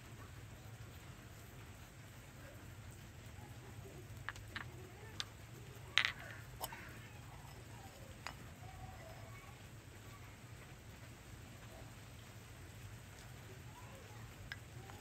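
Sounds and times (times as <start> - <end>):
ceramic pots clinking: 5.9 - 9.2.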